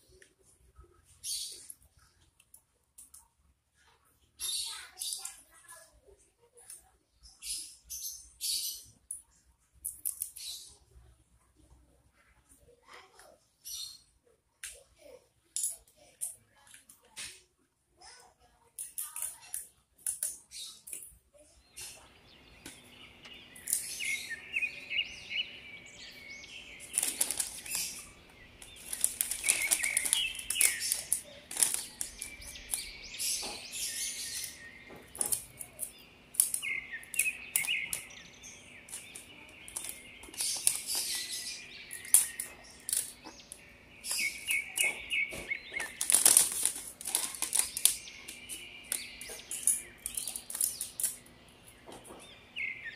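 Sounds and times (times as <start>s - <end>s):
cellophane crinkling: 26.8s - 32.8s, 45.7s - 49.0s.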